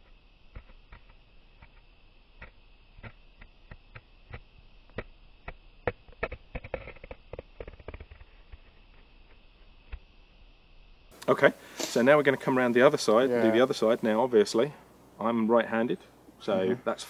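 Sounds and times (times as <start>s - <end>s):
knife carving wood shavings: 11.2s - 14.2s.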